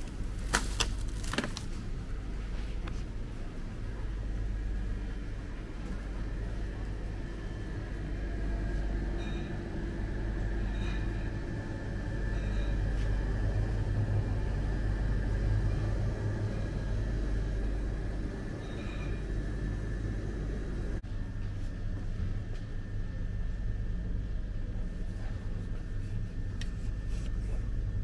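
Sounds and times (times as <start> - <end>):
low hum and rumble: 0.0 - 28.0.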